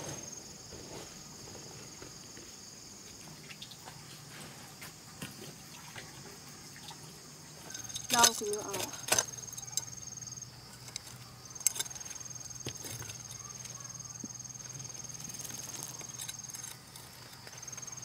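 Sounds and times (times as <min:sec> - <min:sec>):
high-pitched insect trill: 0:06.3 - 0:18.0.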